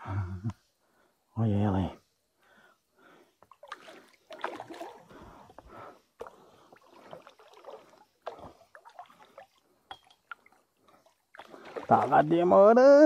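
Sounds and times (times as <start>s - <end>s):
fish thrashing and splashing water: 3.5s - 5.2s, 6.7s - 9.6s, 10.2s - 12.3s.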